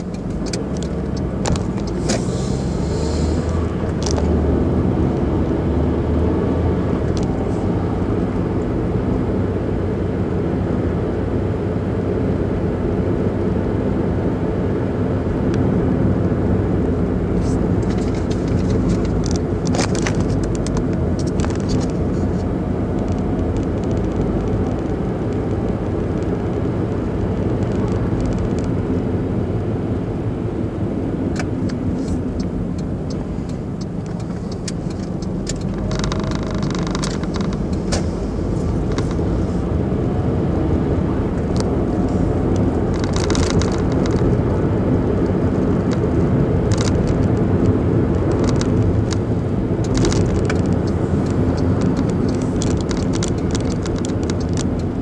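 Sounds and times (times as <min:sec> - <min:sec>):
light clicks and rattles: 0:00.0 - 0:02.3, 0:17.4 - 0:26.3, 0:31.4 - 0:39.7, 0:41.3 - 0:44.4, 0:45.2 - 0:55.0
car engine and tyre rumble: 0:00.0 - 0:55.0
rapid ticking: 0:32.4 - 0:39.4.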